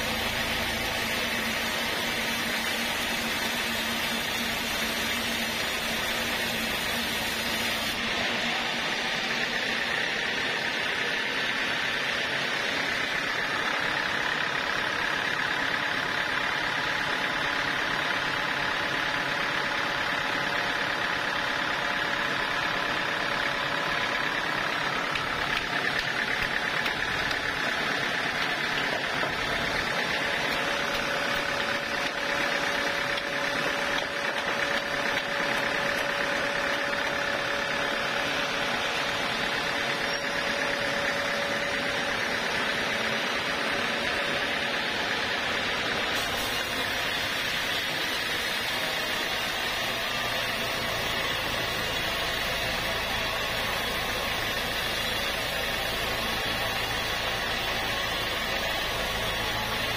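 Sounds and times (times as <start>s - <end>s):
band saw cutting timber: 0.0s - 11.1s, 23.6s - 59.9s.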